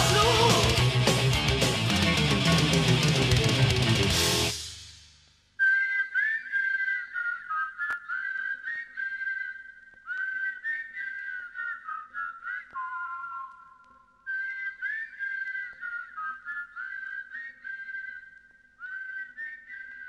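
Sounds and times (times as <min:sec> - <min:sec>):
person whistling a melody: 0:00.0 - 0:01.2, 0:05.6 - 0:20.0
heavy metal chord: 0:00.0 - 0:04.6.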